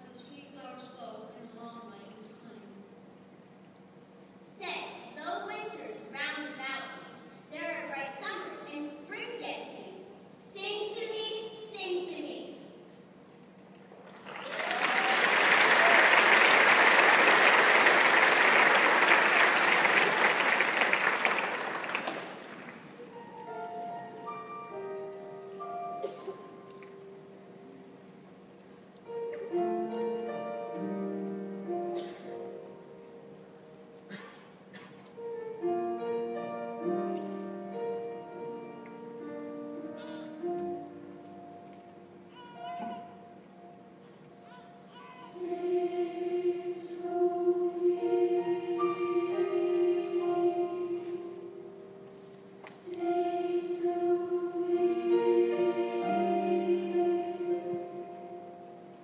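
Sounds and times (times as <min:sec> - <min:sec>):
soft held instrumental notes: 0:00.0 - 0:14.1, 0:22.0 - 0:59.0
audience applauding: 0:13.9 - 0:23.1
piano playing slow chords: 0:21.2 - 0:59.0.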